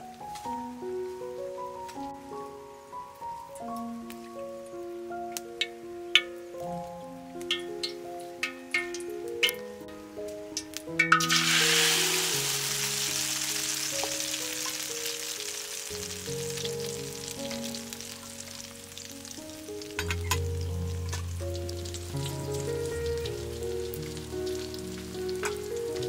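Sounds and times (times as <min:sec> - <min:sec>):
egg sizzling in a pan: 0:07.4 - 0:09.6, 0:10.5 - 0:26.0.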